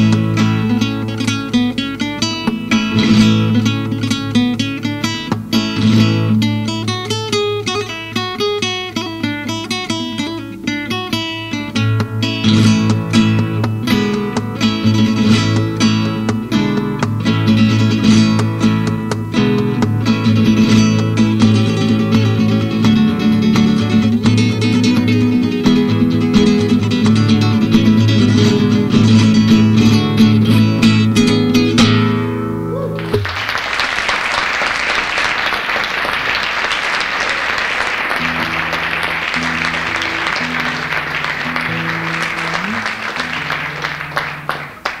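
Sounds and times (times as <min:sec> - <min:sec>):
fast flamenco acoustic guitar: 0:00.0 - 0:45.0
audience applause: 0:33.0 - 0:45.0.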